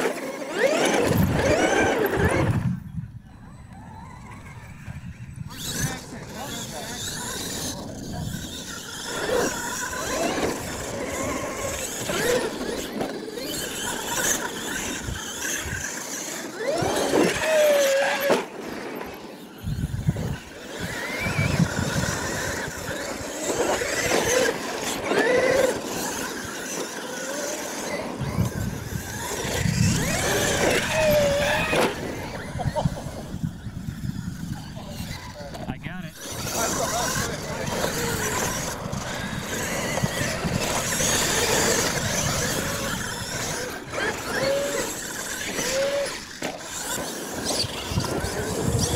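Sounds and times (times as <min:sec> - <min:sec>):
electric toy truck motor whining: 0:00.0 - 0:48.9.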